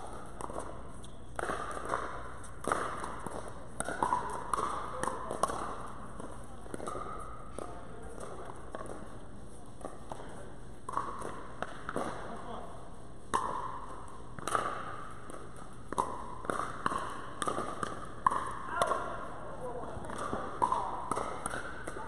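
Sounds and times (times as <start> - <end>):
paddles striking plastic ball: 0.0 - 9.2, 9.8 - 12.6, 13.3 - 19.2, 19.8 - 22.0.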